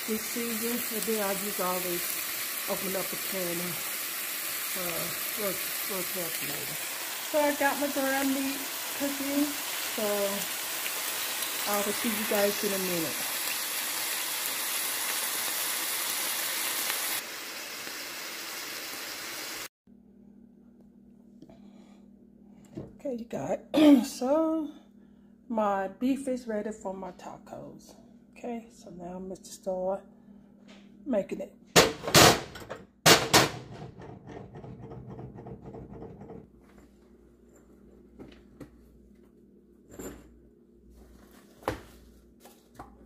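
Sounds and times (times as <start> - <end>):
meat sizzling in a skillet: 0.0 - 19.7
faint steady hum: 19.9 - 31.7
kitchenware knock: 31.8 - 36.5.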